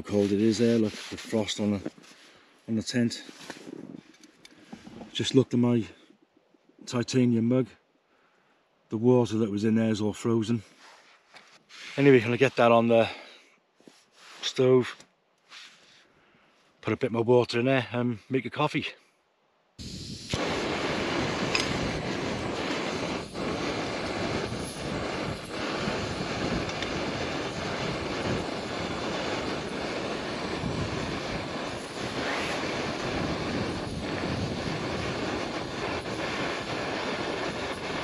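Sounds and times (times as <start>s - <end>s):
camping stove burning hiss: 0.0s - 5.3s, 10.7s - 14.8s, 15.4s - 16.1s, 19.7s - 38.0s.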